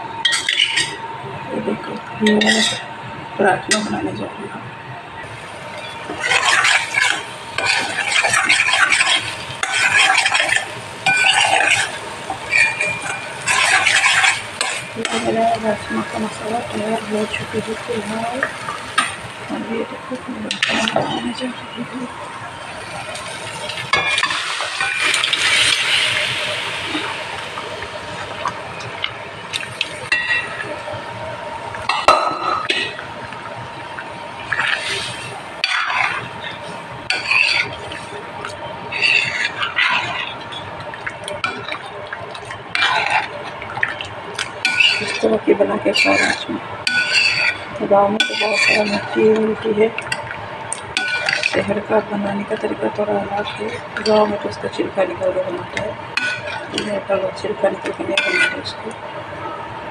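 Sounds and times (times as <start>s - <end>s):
paste frying in oil: 5.2s - 58.9s
liquid hissing in a hot pan: 5.3s - 19.5s, 22.6s - 28.6s.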